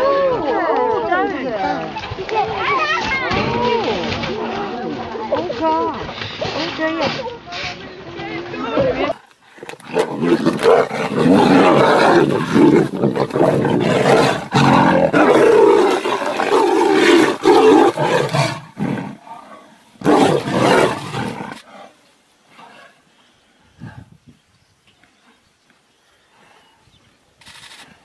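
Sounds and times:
tigers roaring: 9.5s - 23.0s.

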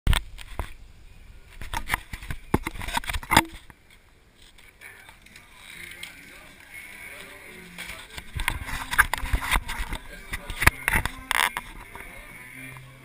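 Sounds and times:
camera handling knocks and rubbing: 1.6s - 3.7s.

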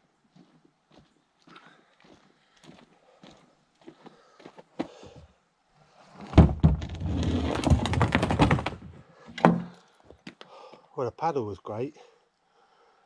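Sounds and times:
kayak hull knocking and scraping: 6.2s - 9.8s
kayak thunking on tarmac: 6.3s - 9.8s.

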